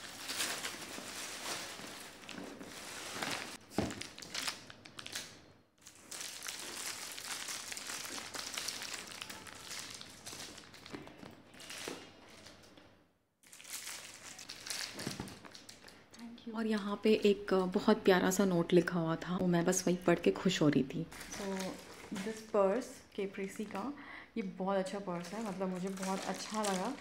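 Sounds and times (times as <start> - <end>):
plastic packaging crinkling: 0.0 - 12.8, 13.4 - 16.0, 21.1 - 22.6, 24.9 - 27.0.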